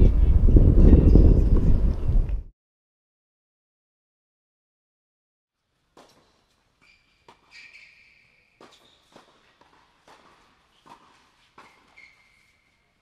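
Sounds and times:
racquet striking tennis ball: 6.0s - 12.6s
sneakers squeaking on court: 6.0s - 13.0s
ball bouncing: 8.5s - 12.4s.

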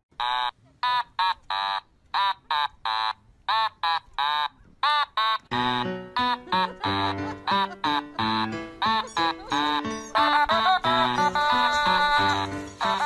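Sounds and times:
voice-like melody notes: 3.6s - 13.0s.

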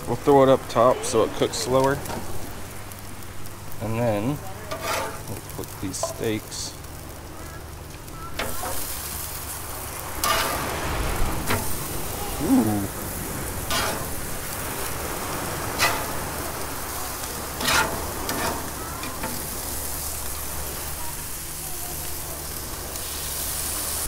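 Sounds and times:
meat sizzling on grill: 0.0s - 24.0s
metal spatula scraping grates: 4.7s - 6.2s, 10.2s - 10.7s, 13.6s - 14.2s, 15.8s - 16.2s, 17.5s - 19.5s.

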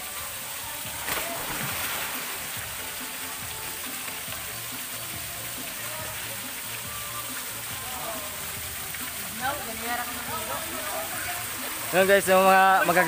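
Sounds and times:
background music: 0.0s - 13.0s
water rushing from small waterfall: 0.0s - 13.0s
person splashing into pool: 1.0s - 2.6s.

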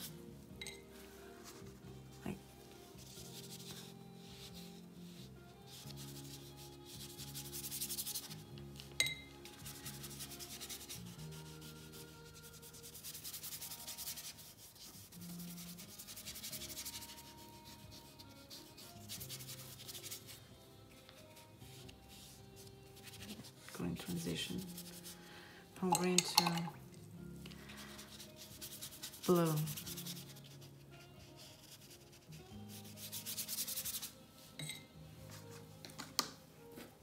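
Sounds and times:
paintbrush scrubbing on paper: 2.9s - 8.4s, 9.5s - 25.2s, 27.8s - 34.2s.

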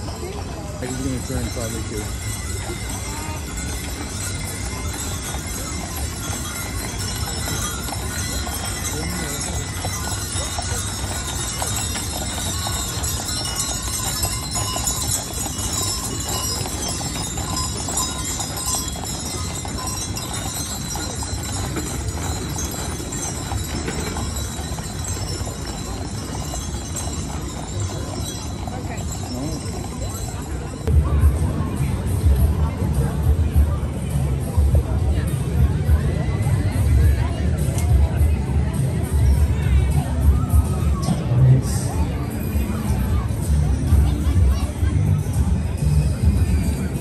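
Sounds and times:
horse hooves clip-clopping on asphalt: 0.0s - 31.7s
crowd voices: 0.0s - 47.0s.

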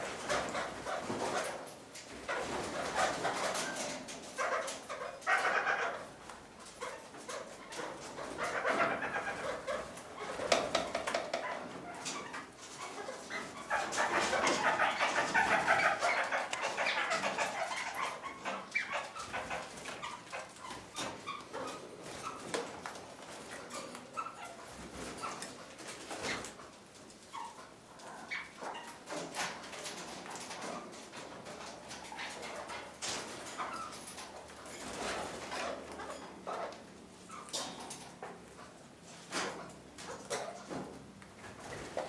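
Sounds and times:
parakeets chattering: 12.9s - 21.8s.

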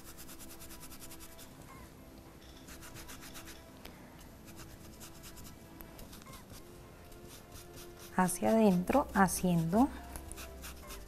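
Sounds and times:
paintbrush scrubbing burlap: 6.1s - 11.0s.

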